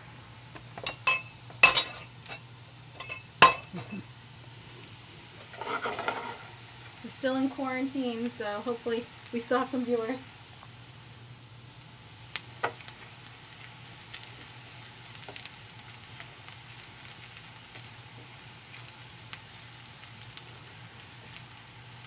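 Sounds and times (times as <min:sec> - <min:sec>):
onions sizzling in hot oil: 0:00.0 - 0:22.0
spatula stirring in a pan: 0:05.4 - 0:06.6.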